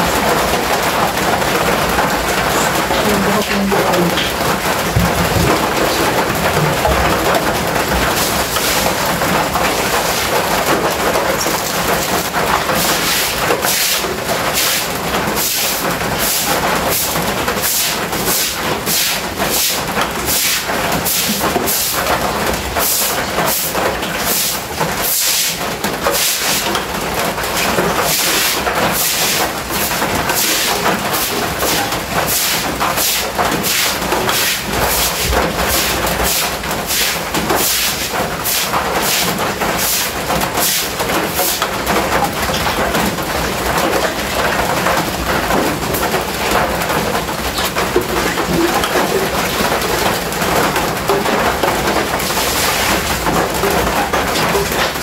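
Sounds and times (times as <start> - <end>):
scrubbing concrete floor: 0.0 - 55.0.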